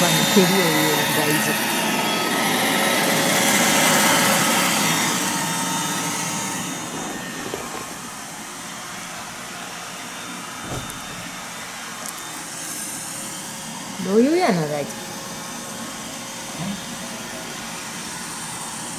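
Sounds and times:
robot vacuum whirring: 0.0 - 8.9.

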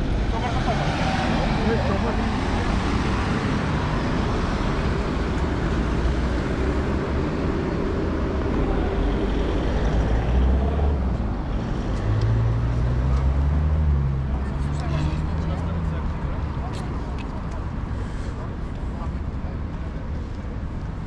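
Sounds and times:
road noise rushing: 0.0 - 21.0.

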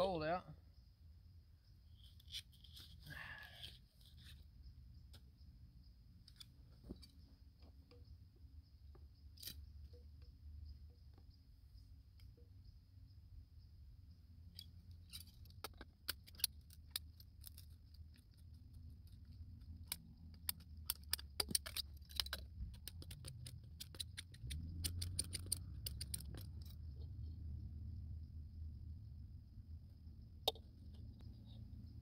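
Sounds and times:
pipe cutter ratcheting clicks: 19.8 - 26.6.

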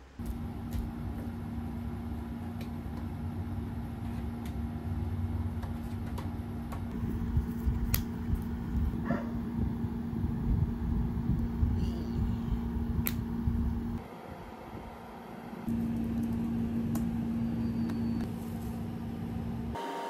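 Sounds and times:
low room hum and rumble: 0.0 - 19.8.

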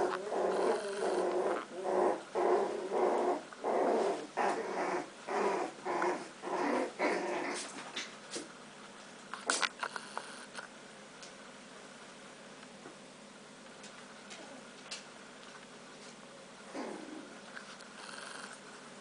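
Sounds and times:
puppies play-growling: 0.0 - 8.6, 16.7 - 18.7.

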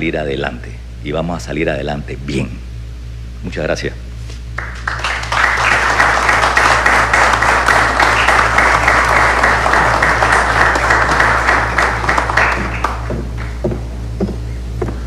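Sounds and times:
low hum: 0.0 - 15.0
audience applauding: 4.6 - 13.7.

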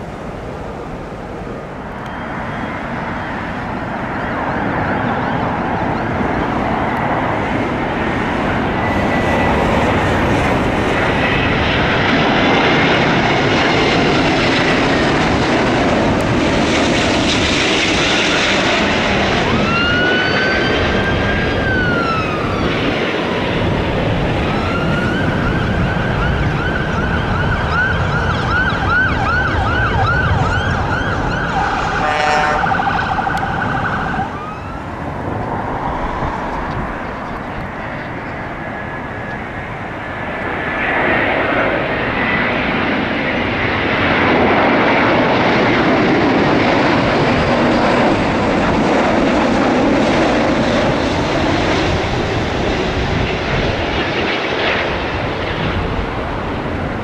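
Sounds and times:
steady rushing noise: 0.0 - 57.0
emergency vehicle siren: 8.6 - 39.9.

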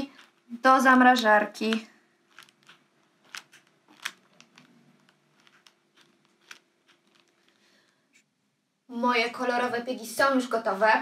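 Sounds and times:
paper piping bag crinkling: 2.2 - 7.9.

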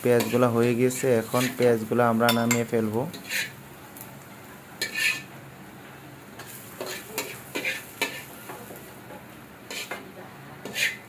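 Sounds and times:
metal spatula scraping metal pan: 0.1 - 0.5, 2.3 - 3.6, 4.8 - 5.3, 6.4 - 8.4, 9.7 - 10.0, 10.6 - 11.0.

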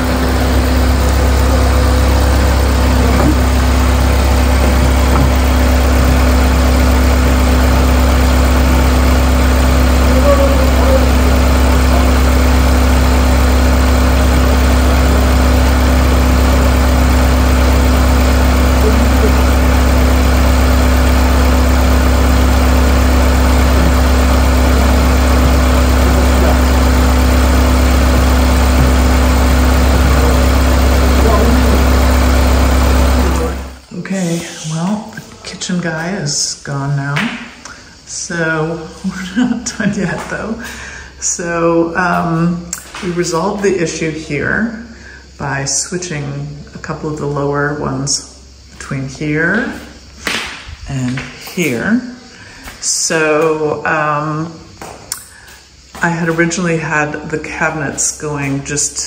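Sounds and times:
truck engine idling: 0.0 - 33.8.

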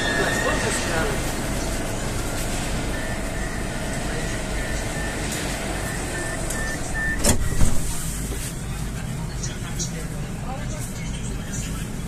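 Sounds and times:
short high warning beeps: 0.0 - 1.0, 2.2 - 7.9
train car humming: 0.0 - 12.0
train doors shutting with knock: 6.5 - 8.0.

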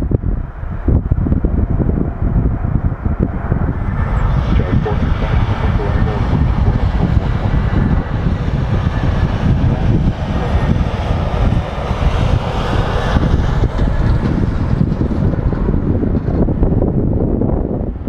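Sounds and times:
jet engines rumbling: 0.0 - 18.0
wind buffeting microphone: 0.0 - 18.0.

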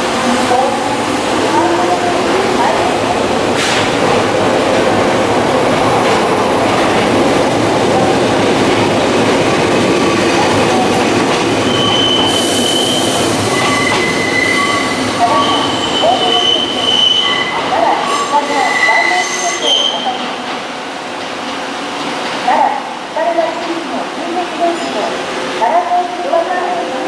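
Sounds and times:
train wheels rumbling on rail: 0.0 - 27.0
high-pitched wheel squeal: 11.7 - 20.0.

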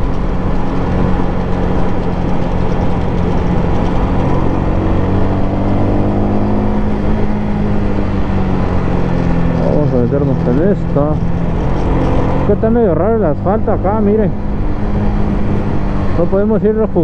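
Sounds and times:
wind noise: 0.0 - 12.6
motorcycle engine cruising: 0.0 - 17.0.

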